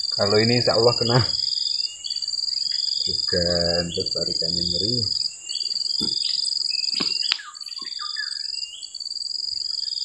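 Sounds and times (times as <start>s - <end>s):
birds chirping: 0.0s - 10.0s
insects trilling: 0.0s - 10.0s
sharp clicks: 6.9s - 7.5s.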